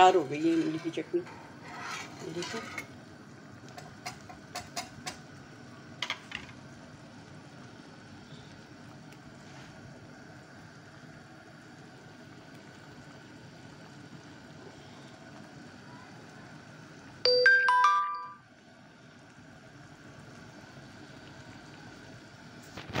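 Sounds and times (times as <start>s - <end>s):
thick sauce bubbling in a pan: 2.8s - 17.2s, 18.5s - 23.0s
bell-like chime notes: 17.3s - 18.4s.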